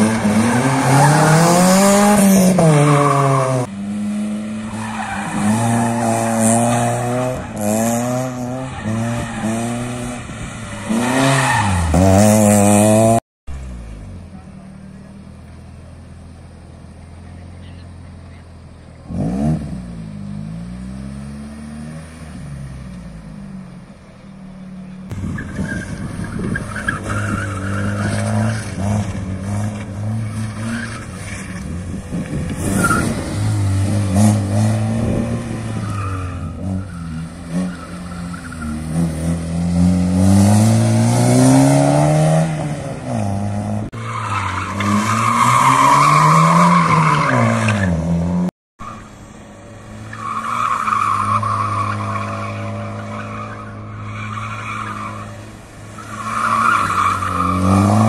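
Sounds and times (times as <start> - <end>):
car engines revving hard: 0.0 - 15.6, 17.2 - 23.8, 24.8 - 48.5, 49.3 - 58.0.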